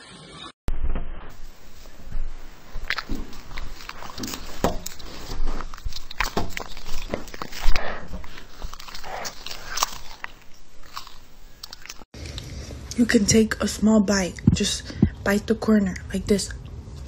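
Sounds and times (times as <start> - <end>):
smacking bites and clicks: 2.7 - 12.5
cats chewing treats: 2.7 - 12.6.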